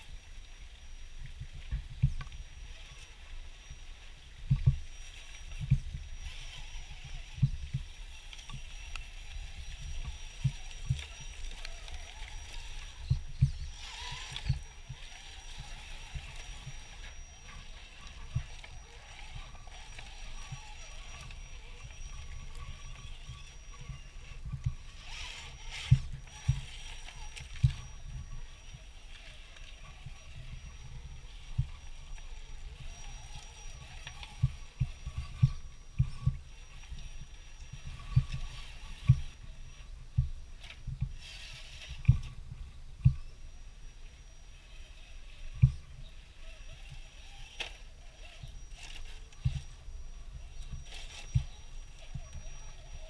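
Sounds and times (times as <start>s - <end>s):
thin high motor whine: 0.0s - 53.0s
low thuds and bumps on rocks: 5.6s - 28.9s.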